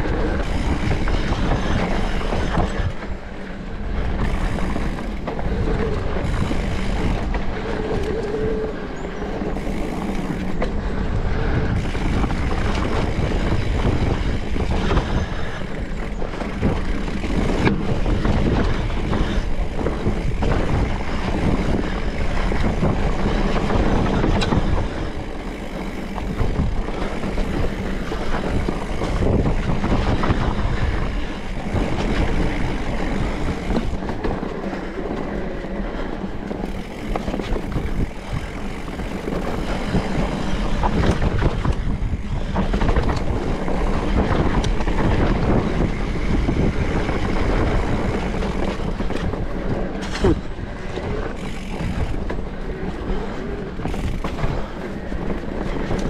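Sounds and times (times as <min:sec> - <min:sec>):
bike rattling over bumps: 0:00.0 - 0:56.0
tyres rumbling on dirt trail: 0:00.0 - 0:56.0.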